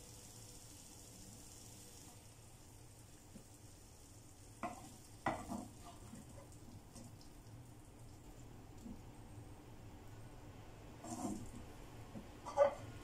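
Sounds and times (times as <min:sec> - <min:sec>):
vegetables sizzling in a frying pan: 0:00.0 - 0:07.3
spatula scraping and knocking pan: 0:04.6 - 0:06.3.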